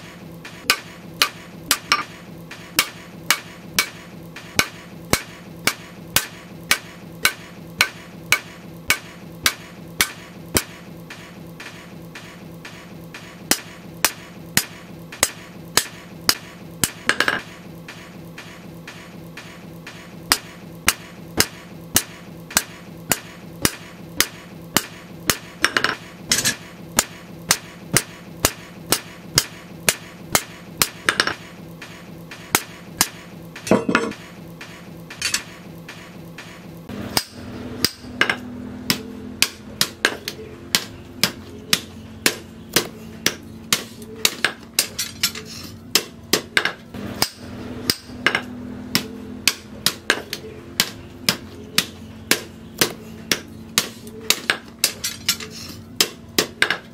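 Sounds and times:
low hum: 0:00.0 - 0:56.4
hammer striking steel on anvil: 0:00.5 - 0:56.9.

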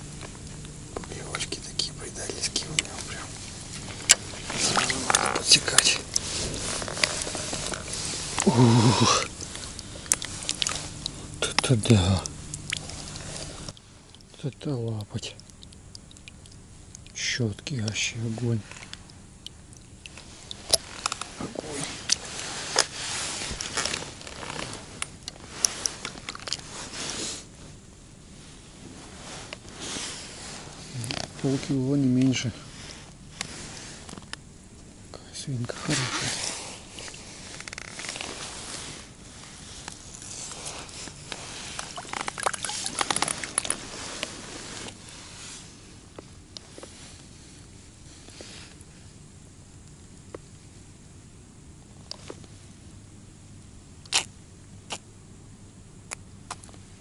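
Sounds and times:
fish handled in wet hands: 0:02.8 - 0:17.7, 0:18.4 - 0:27.6, 0:36.8 - 0:45.8
net and clothing rustling: 0:03.3 - 0:11.0, 0:35.9 - 0:45.8.

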